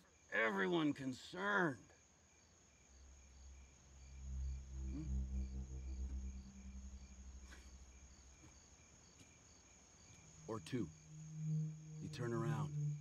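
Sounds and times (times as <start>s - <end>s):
crickets chirping: 0.0s - 13.0s
high insect trill: 0.0s - 13.0s
low drone: 3.0s - 8.4s, 10.3s - 13.0s.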